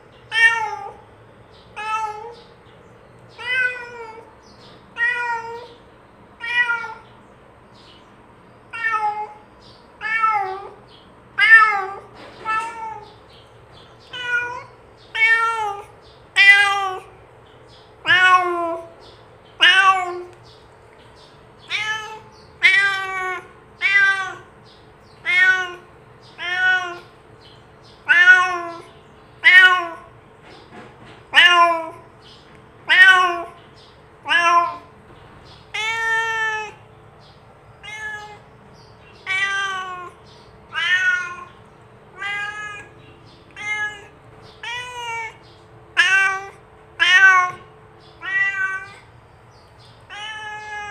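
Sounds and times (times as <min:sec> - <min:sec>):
cat meowing: 0:00.3 - 0:01.0, 0:01.8 - 0:02.5, 0:03.3 - 0:04.3, 0:04.9 - 0:05.8, 0:06.4 - 0:07.1, 0:08.7 - 0:09.4, 0:10.0 - 0:10.8, 0:11.4 - 0:13.2, 0:14.0 - 0:17.2, 0:18.0 - 0:19.0, 0:19.6 - 0:20.4, 0:21.6 - 0:24.5, 0:25.2 - 0:27.2, 0:28.0 - 0:30.1, 0:31.3 - 0:32.1, 0:32.8 - 0:33.6, 0:34.2 - 0:34.9, 0:35.6 - 0:36.8, 0:37.8 - 0:38.5, 0:39.1 - 0:49.1, 0:50.0 - 0:50.9.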